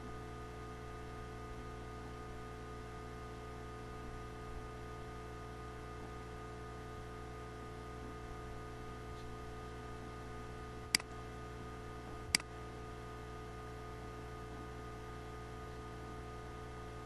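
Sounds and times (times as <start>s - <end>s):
steady low hum: 0.0s - 17.0s
sharp clicks: 10.9s - 11.2s, 12.3s - 12.5s.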